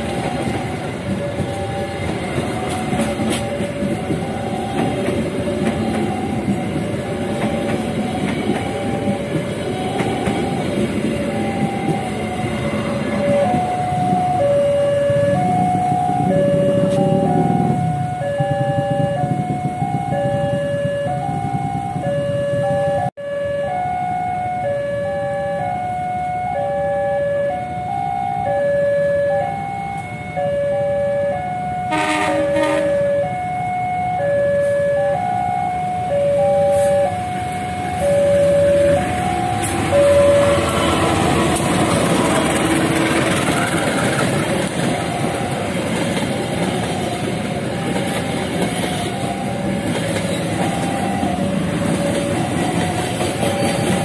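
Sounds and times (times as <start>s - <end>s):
train rumbling and clacking: 0.0s - 23.2s, 25.5s - 54.0s
level-crossing two-tone alarm: 0.0s - 54.0s
locomotive horn blast: 31.8s - 33.3s.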